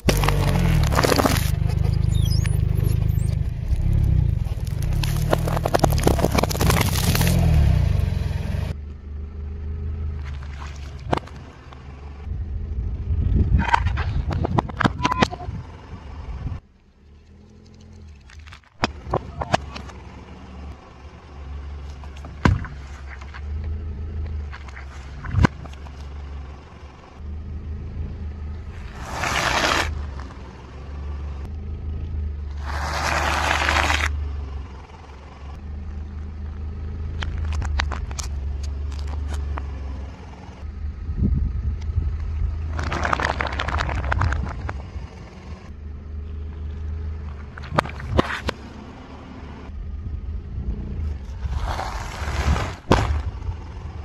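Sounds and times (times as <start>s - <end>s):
tyre crushing plastic: 0.0s - 1.7s, 4.4s - 7.5s
low engine hum: 0.0s - 54.0s
sharp cracks and pops: 3.3s - 7.5s, 37.2s - 39.7s, 42.7s - 44.8s.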